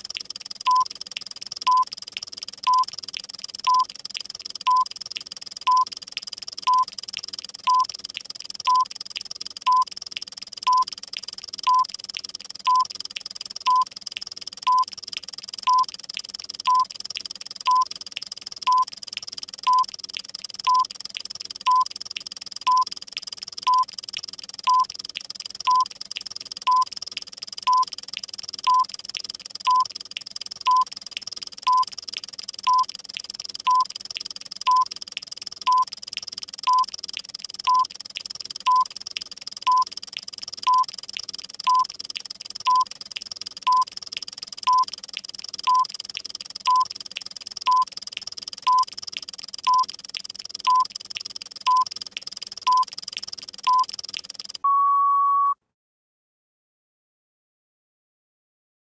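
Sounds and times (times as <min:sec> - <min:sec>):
fast clock ticking: 0:00.0 - 0:54.6
short electronic beeps: 0:00.7 - 0:00.9, 0:02.6 - 0:02.9, 0:03.6 - 0:03.9, 0:04.7 - 0:04.9, 0:05.7 - 0:05.9, 0:06.6 - 0:06.9, 0:07.6 - 0:07.9, 0:08.7 - 0:08.9, 0:10.6 - 0:10.9, 0:11.6 - 0:11.9, 0:12.7 - 0:12.9, 0:15.6 - 0:15.9, 0:16.7 - 0:16.9, 0:19.6 - 0:19.9, 0:20.6 - 0:20.9, 0:21.7 - 0:21.9, 0:23.7 - 0:23.9, 0:24.6 - 0:24.9, 0:25.7 - 0:25.9, 0:28.6 - 0:28.9, 0:29.7 - 0:29.9, 0:33.7 - 0:33.9, 0:34.7 - 0:34.9, 0:38.7 - 0:38.9, 0:40.6 - 0:40.9, 0:49.6 - 0:49.9, 0:50.6 - 0:50.9, 0:54.6 - 0:55.6
long electronic beep: 0:54.6 - 0:55.6.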